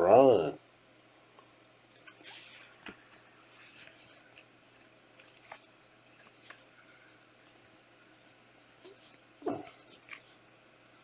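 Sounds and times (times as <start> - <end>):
trading cards swishing: 2.0 - 6.8, 7.4 - 10.5.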